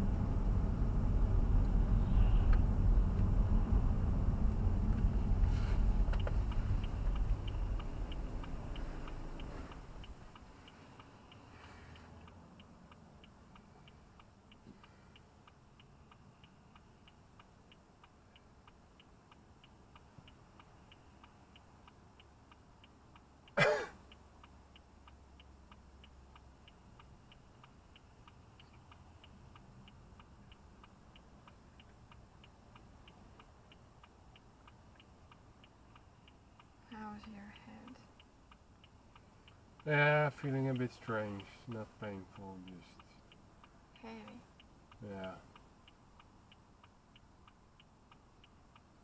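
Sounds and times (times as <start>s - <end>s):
faint steady ticking: 0.0s - 49.0s
person clearing throat: 23.6s - 24.0s.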